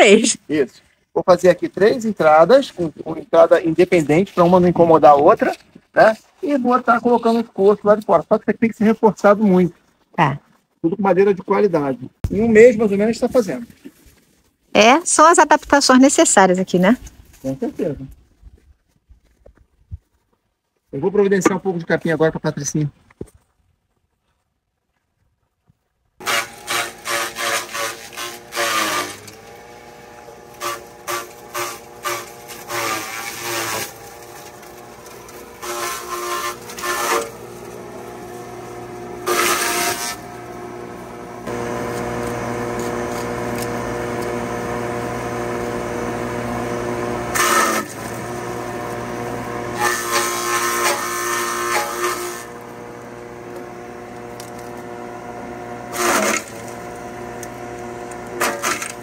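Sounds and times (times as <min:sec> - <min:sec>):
grass being chopped: 0:26.2 - 0:54.9, 0:55.9 - 0:59.0
forage chopper humming: 0:26.2 - 0:59.0.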